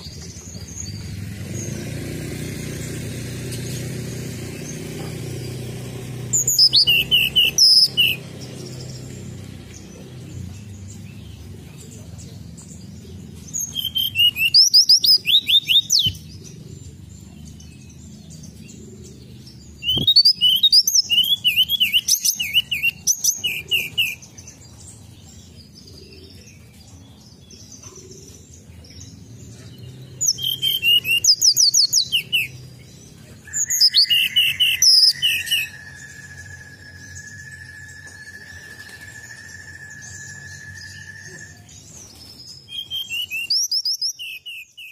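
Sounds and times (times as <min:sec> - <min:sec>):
bird singing chirps and trills: 0:00.0 - 0:44.9
steady high whistle-like tone: 0:35.1 - 0:41.9.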